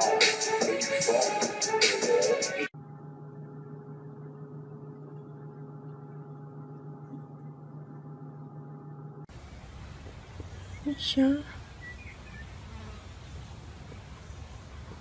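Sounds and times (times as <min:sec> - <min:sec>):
rap music: 0:00.0 - 0:02.7
steady low hum: 0:02.7 - 0:15.0.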